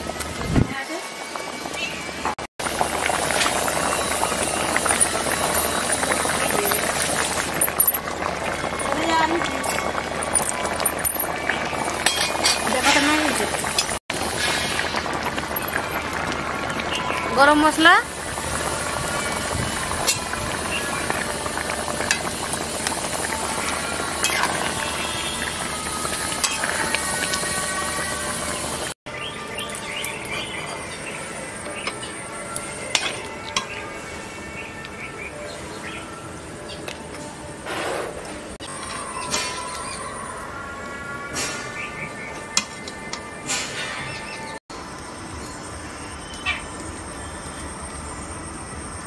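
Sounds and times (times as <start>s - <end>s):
thick sauce bubbling and popping: 2.6s - 17.4s, 18.1s - 27.8s.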